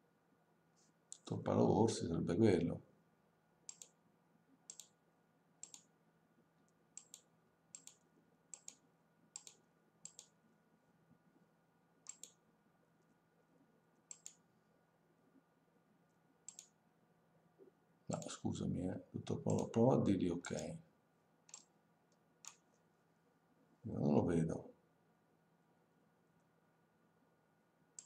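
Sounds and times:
faint steady hum: 0:00.0 - 0:28.0
faint sharp clicks: 0:14.1 - 0:14.4, 0:16.5 - 0:16.8.

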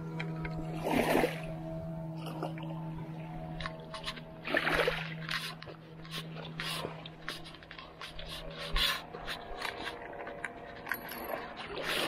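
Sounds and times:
steady low hum: 0:00.0 - 0:12.0
footsteps on sand and dry leaves: 0:05.2 - 0:10.8.

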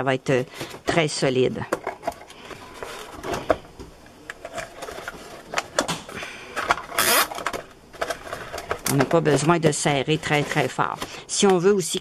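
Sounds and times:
cable tie zipping: 0:07.0 - 0:07.4.

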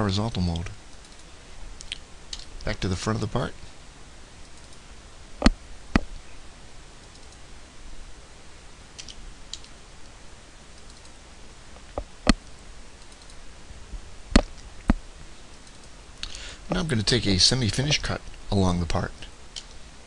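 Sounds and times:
low room hum: 0:00.0 - 0:20.0
computer mouse clicks: 0:00.9 - 0:02.5, 0:04.4 - 0:04.8, 0:07.0 - 0:07.4, 0:09.0 - 0:09.8, 0:10.8 - 0:11.2, 0:11.9 - 0:13.4, 0:14.4 - 0:16.0, 0:19.5 - 0:19.8.

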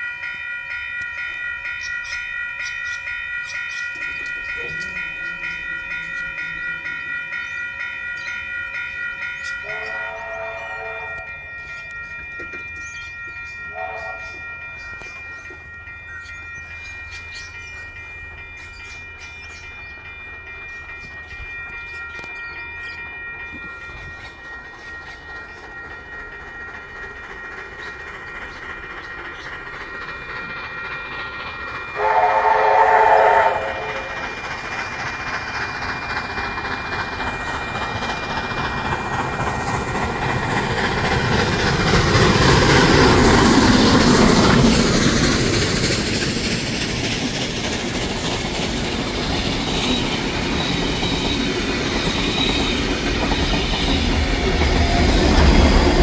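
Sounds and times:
steam train approaching: 0:00.0 - 0:56.0
steam whistle: 0:32.0 - 0:34.1.

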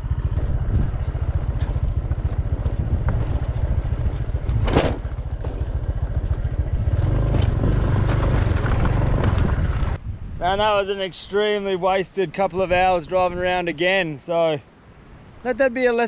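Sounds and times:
vehicle engine running: 0:00.0 - 0:10.0.

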